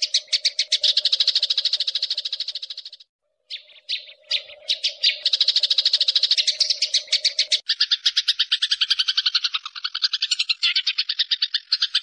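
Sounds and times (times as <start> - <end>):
sparrows chirping: 0.0 - 12.0.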